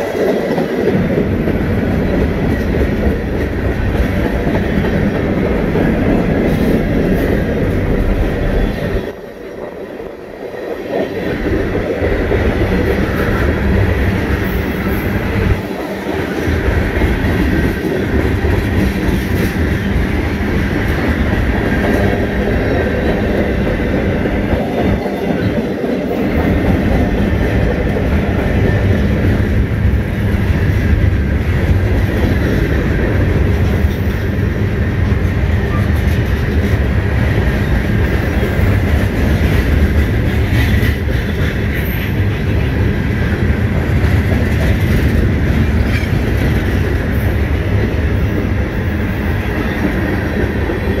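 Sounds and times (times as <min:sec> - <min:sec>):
train wheels rumbling on rails: 0:00.0 - 0:51.0.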